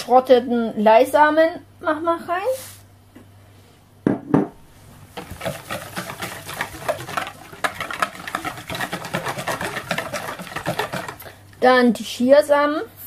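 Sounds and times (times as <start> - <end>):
knock: 4.1 - 4.5
whisk beating batter in bowl: 5.0 - 11.7.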